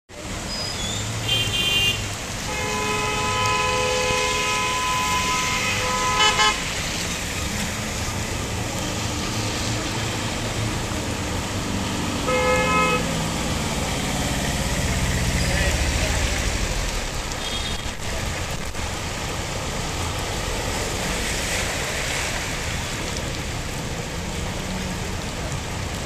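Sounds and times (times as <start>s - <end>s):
heavy rain hissing: 0.2s - 26.0s
vehicle horns honking: 1.2s - 6.8s, 12.2s - 13.1s.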